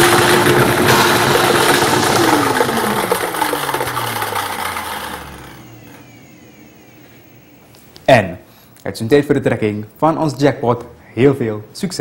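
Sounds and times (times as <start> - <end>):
machine motor winding down: 0.0 - 7.9.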